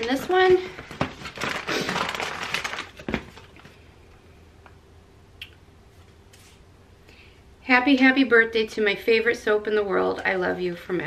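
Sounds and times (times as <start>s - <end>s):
wrapping paper crinkling: 0.0s - 3.8s
faint steady hum: 0.0s - 11.0s.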